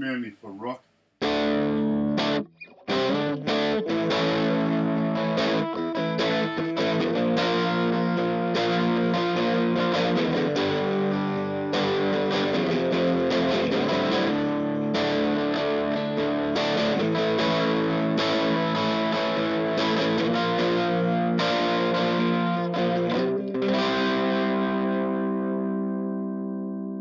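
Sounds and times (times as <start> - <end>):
overdriven electric guitar chords: 1.2 - 27.0.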